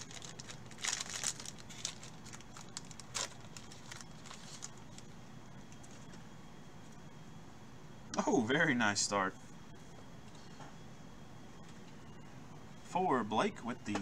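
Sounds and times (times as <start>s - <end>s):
foil pack crinkling and tearing: 0.0s - 5.1s.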